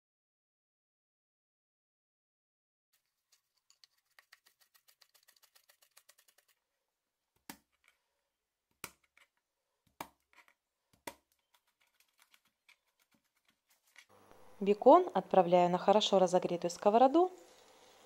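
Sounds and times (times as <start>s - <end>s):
knife chopping on plastic board: 9.9s - 11.3s.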